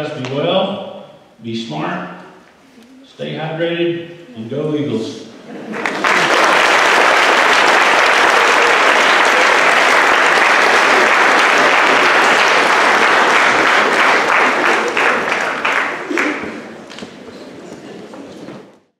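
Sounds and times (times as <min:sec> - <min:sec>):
audience applauding: 0:05.6 - 0:18.3.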